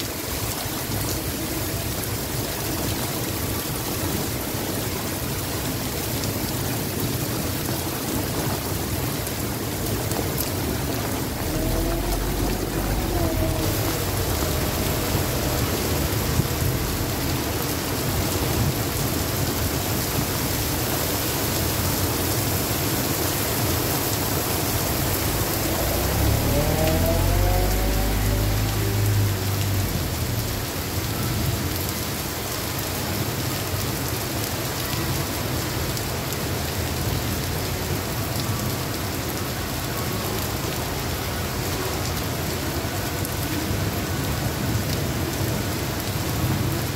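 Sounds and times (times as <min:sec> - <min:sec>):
heavy rain on pavement and water: 0:00.0 - 0:46.9
car passing through water: 0:00.1 - 0:46.9.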